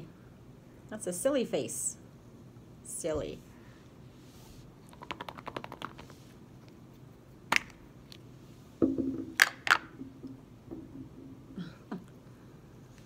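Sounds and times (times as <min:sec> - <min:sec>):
low steady hum: 0:00.0 - 0:13.0
plastic toy clicking rapidly: 0:04.9 - 0:06.0
small figure knocking on table: 0:08.8 - 0:11.3.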